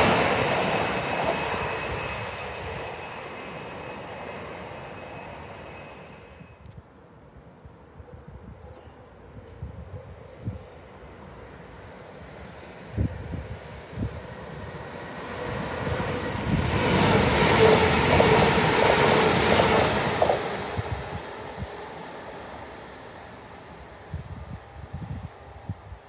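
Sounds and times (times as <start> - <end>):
passing train rail clatter: 0.0 - 6.5, 14.5 - 22.1.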